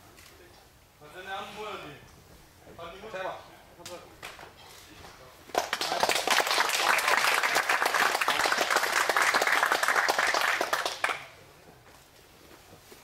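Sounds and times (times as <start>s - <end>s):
audience applauding: 5.5s - 11.3s.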